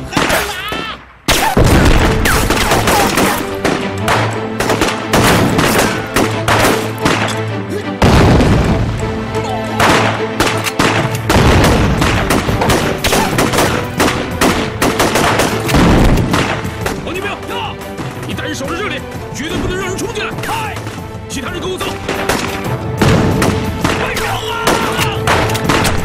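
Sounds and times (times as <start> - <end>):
dramatic music score: 0.0 - 26.0
rifle and machine-gun fire: 1.3 - 7.3, 9.8 - 16.9, 22.1 - 26.0
bullet impacts: 1.3 - 7.5, 9.8 - 17.0, 21.9 - 26.0
deep loud bang: 8.0 - 8.9.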